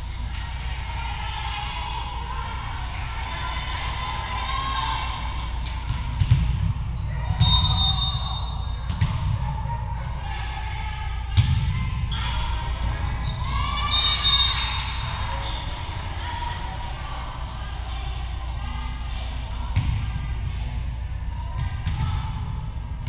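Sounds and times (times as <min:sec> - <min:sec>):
girls calling and shouting: 0:00.0 - 0:05.9, 0:09.4 - 0:22.4
volleyball thumping on gym floor: 0:05.9 - 0:07.4, 0:08.8 - 0:09.4.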